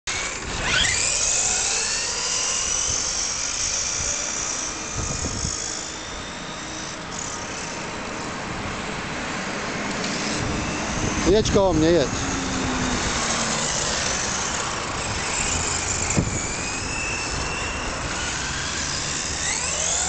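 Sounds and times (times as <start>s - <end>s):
rc car motor whining: 0.1s - 20.0s.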